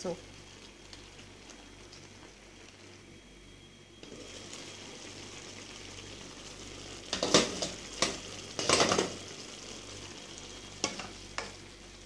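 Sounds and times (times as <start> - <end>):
sauce bubbling in a pan: 0.2 - 12.0
knocks and clatter against pan: 7.1 - 9.1.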